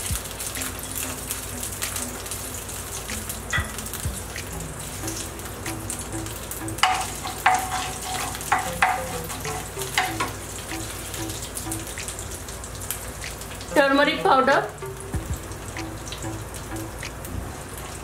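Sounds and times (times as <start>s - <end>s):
seeds sizzling in hot oil: 0.0s - 18.0s
wooden spatula stirring: 6.8s - 10.4s.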